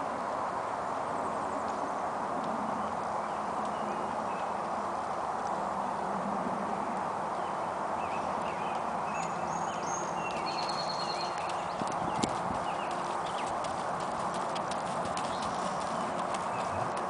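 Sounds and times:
horse hoofbeats on dirt: 0:10.2 - 0:17.0.

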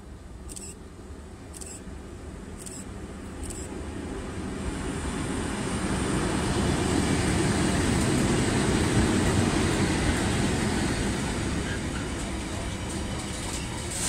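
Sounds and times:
freight train passing: 0:00.0 - 0:14.0.

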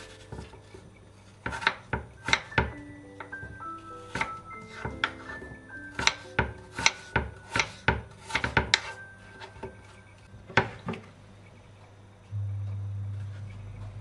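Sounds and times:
knife chopping on cutting board: 0:01.4 - 0:02.8, 0:04.1 - 0:09.0.

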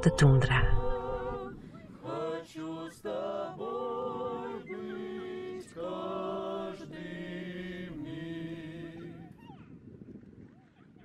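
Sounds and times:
voices singing in harmony: 0:00.0 - 0:09.4.

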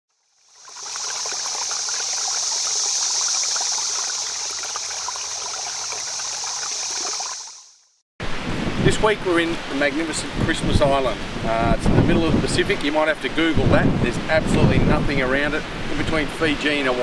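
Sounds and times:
water trickling: 0:00.3 - 0:07.8.

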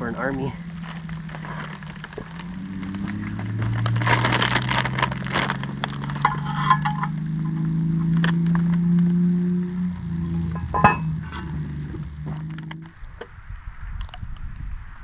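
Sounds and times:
plastic bag crinkling: 0:00.6 - 0:06.4
metal tongs clink: 0:06.2 - 0:07.2.

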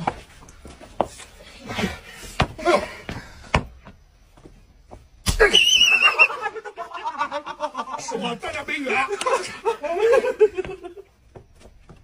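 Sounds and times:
men chattering and laughing: 0:06.1 - 0:11.4.

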